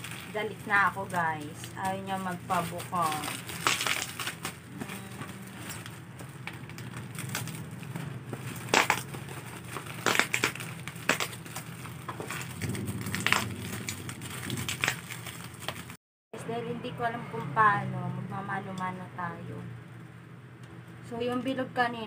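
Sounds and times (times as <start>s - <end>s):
plastic packaging crinkling: 0.0s - 16.0s.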